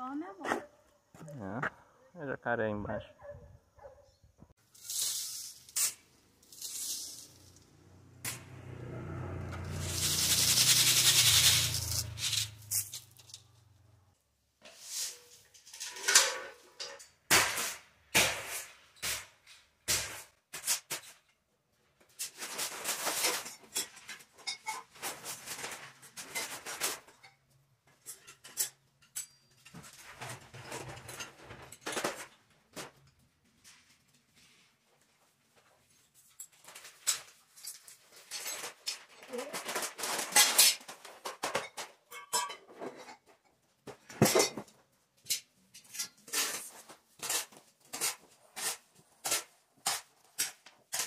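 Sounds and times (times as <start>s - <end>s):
hoe scraping sand and cement: 4.6s - 13.5s.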